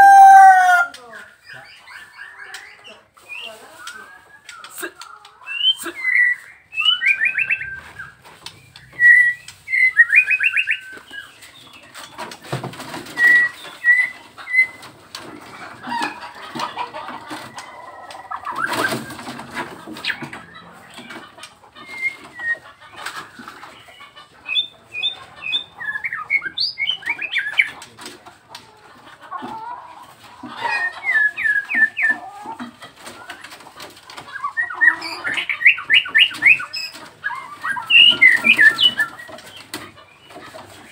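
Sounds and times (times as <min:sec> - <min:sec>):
bird singing whistles and trills: 0:05.5 - 0:11.3, 0:13.0 - 0:14.8, 0:21.8 - 0:22.7, 0:37.6 - 0:39.3.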